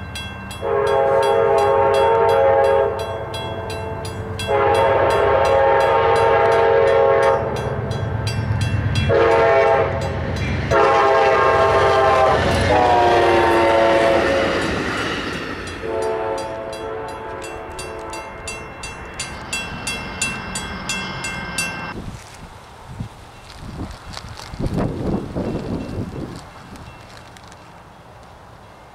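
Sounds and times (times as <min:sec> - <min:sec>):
crossing bell ringing: 0:00.0 - 0:12.9, 0:14.4 - 0:22.0
train rumble: 0:00.0 - 0:28.9
locomotive air horn blasts: 0:00.6 - 0:07.9, 0:09.1 - 0:14.6, 0:15.8 - 0:18.6.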